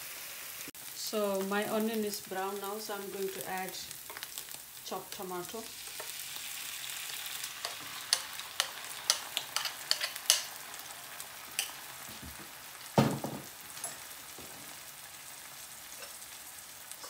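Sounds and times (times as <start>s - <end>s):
onions sizzling in oil: 0.0s - 17.0s.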